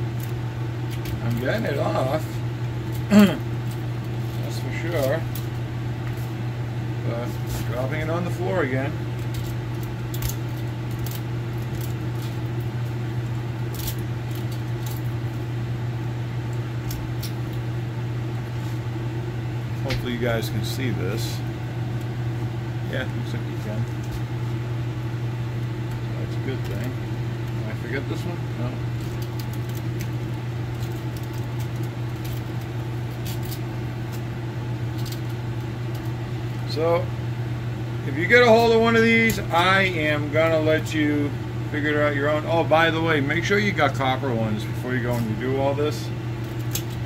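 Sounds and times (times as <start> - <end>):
low mechanical hum: 0.0 - 47.0
small metal pieces clicking: 9.3 - 12.4, 13.7 - 15.1, 30.7 - 32.5, 33.2 - 33.6, 35.0 - 36.1.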